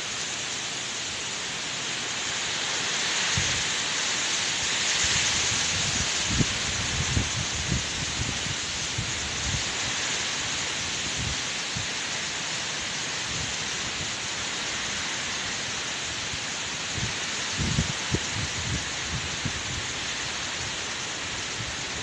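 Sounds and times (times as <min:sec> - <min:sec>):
wind and rain rushing hiss: 0:00.0 - 0:22.0
wind buffeting microphone: 0:05.1 - 0:09.8, 0:16.9 - 0:20.7.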